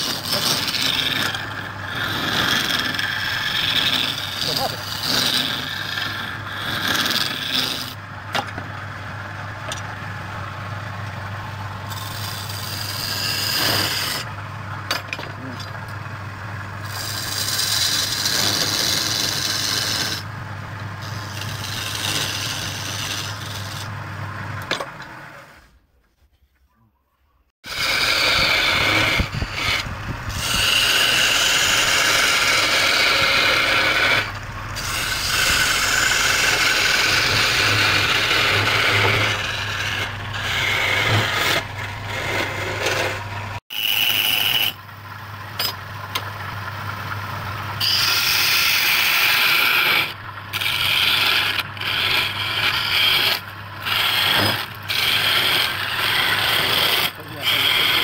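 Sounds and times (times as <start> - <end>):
chisel scraping wood: 0.0 - 8.7, 11.9 - 14.3, 16.8 - 20.3, 21.0 - 24.0, 27.6 - 44.8, 47.8 - 58.0
lathe motor hum: 0.0 - 25.5, 27.7 - 58.0.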